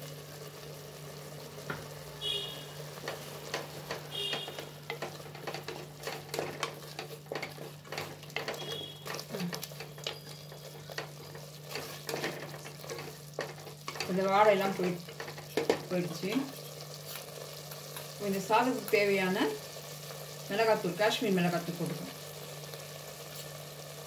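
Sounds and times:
sauce sizzling: 0.0s - 24.0s
spatula scraping a pot: 3.0s - 15.8s.

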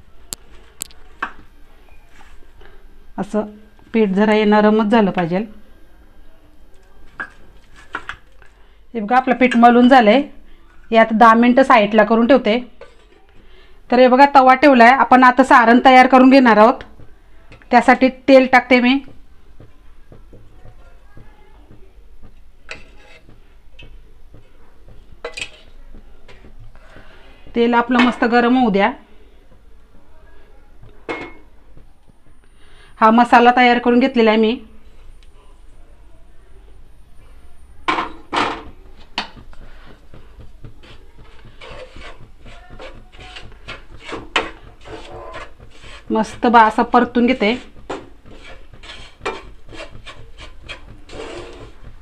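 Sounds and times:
wooden spatula scraping a frying pan: 22.6s - 28.4s, 39.2s - 52.0s.

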